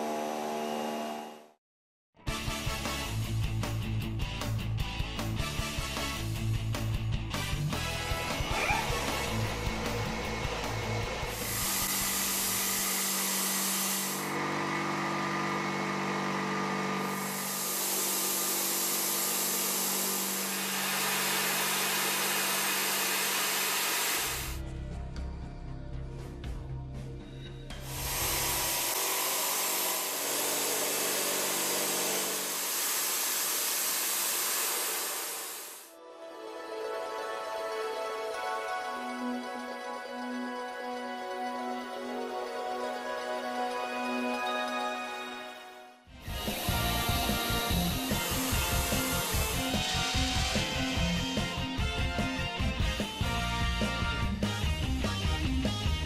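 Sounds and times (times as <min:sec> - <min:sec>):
background music: 0:02.2 - 0:11.6, 0:24.6 - 0:28.0, 0:36.0 - 0:56.0
milling machine cutting steel: 0:08.0 - 0:24.6, 0:27.8 - 0:35.9, 0:46.2 - 0:52.0.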